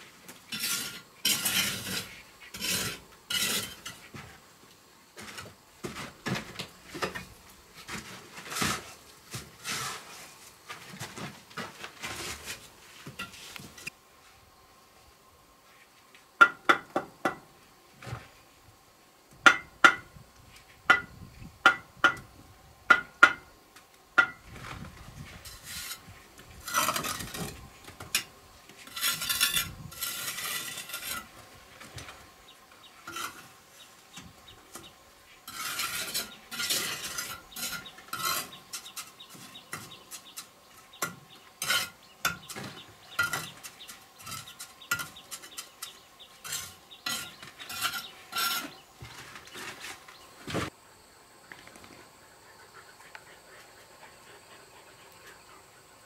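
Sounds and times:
trowel scraping mortar: 0:00.5 - 0:04.2, 0:07.9 - 0:10.4, 0:25.4 - 0:31.4, 0:33.0 - 0:33.6, 0:34.8 - 0:50.2.

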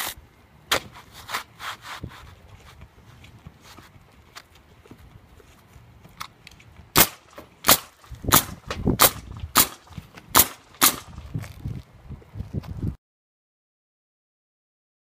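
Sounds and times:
nail gun shots: 0:07.0 - 0:11.2.

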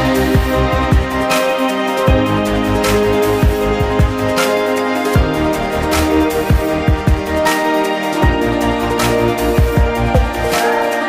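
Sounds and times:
synth chords: 0:00.0 - 0:11.0
kick drum: 0:00.3 - 0:01.3, 0:02.1 - 0:02.4, 0:03.4 - 0:04.2, 0:05.2 - 0:05.4, 0:06.5 - 0:07.4, 0:09.6 - 0:10.5.

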